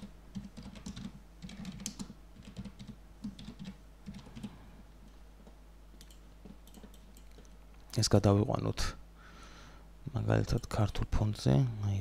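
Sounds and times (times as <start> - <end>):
keyboard typing: 0.0 - 4.6, 6.0 - 7.6.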